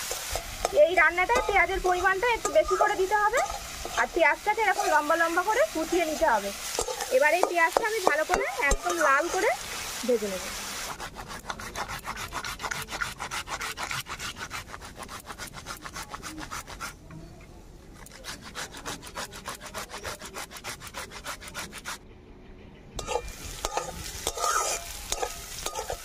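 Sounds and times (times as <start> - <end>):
onions frying: 0.0 - 12.7, 23.0 - 26.0
spatula scraping wok: 0.0 - 17.0, 17.9 - 22.0, 23.0 - 26.0
tomato rubbed on metal grater: 10.9 - 17.0, 18.0 - 22.0.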